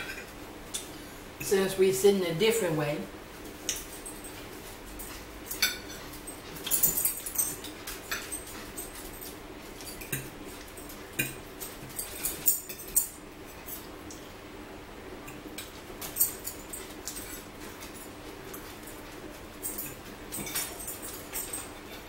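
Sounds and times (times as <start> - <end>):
faint steady hum: 0.0 - 22.0
forks clicking on plates: 5.0 - 14.2, 15.3 - 22.0.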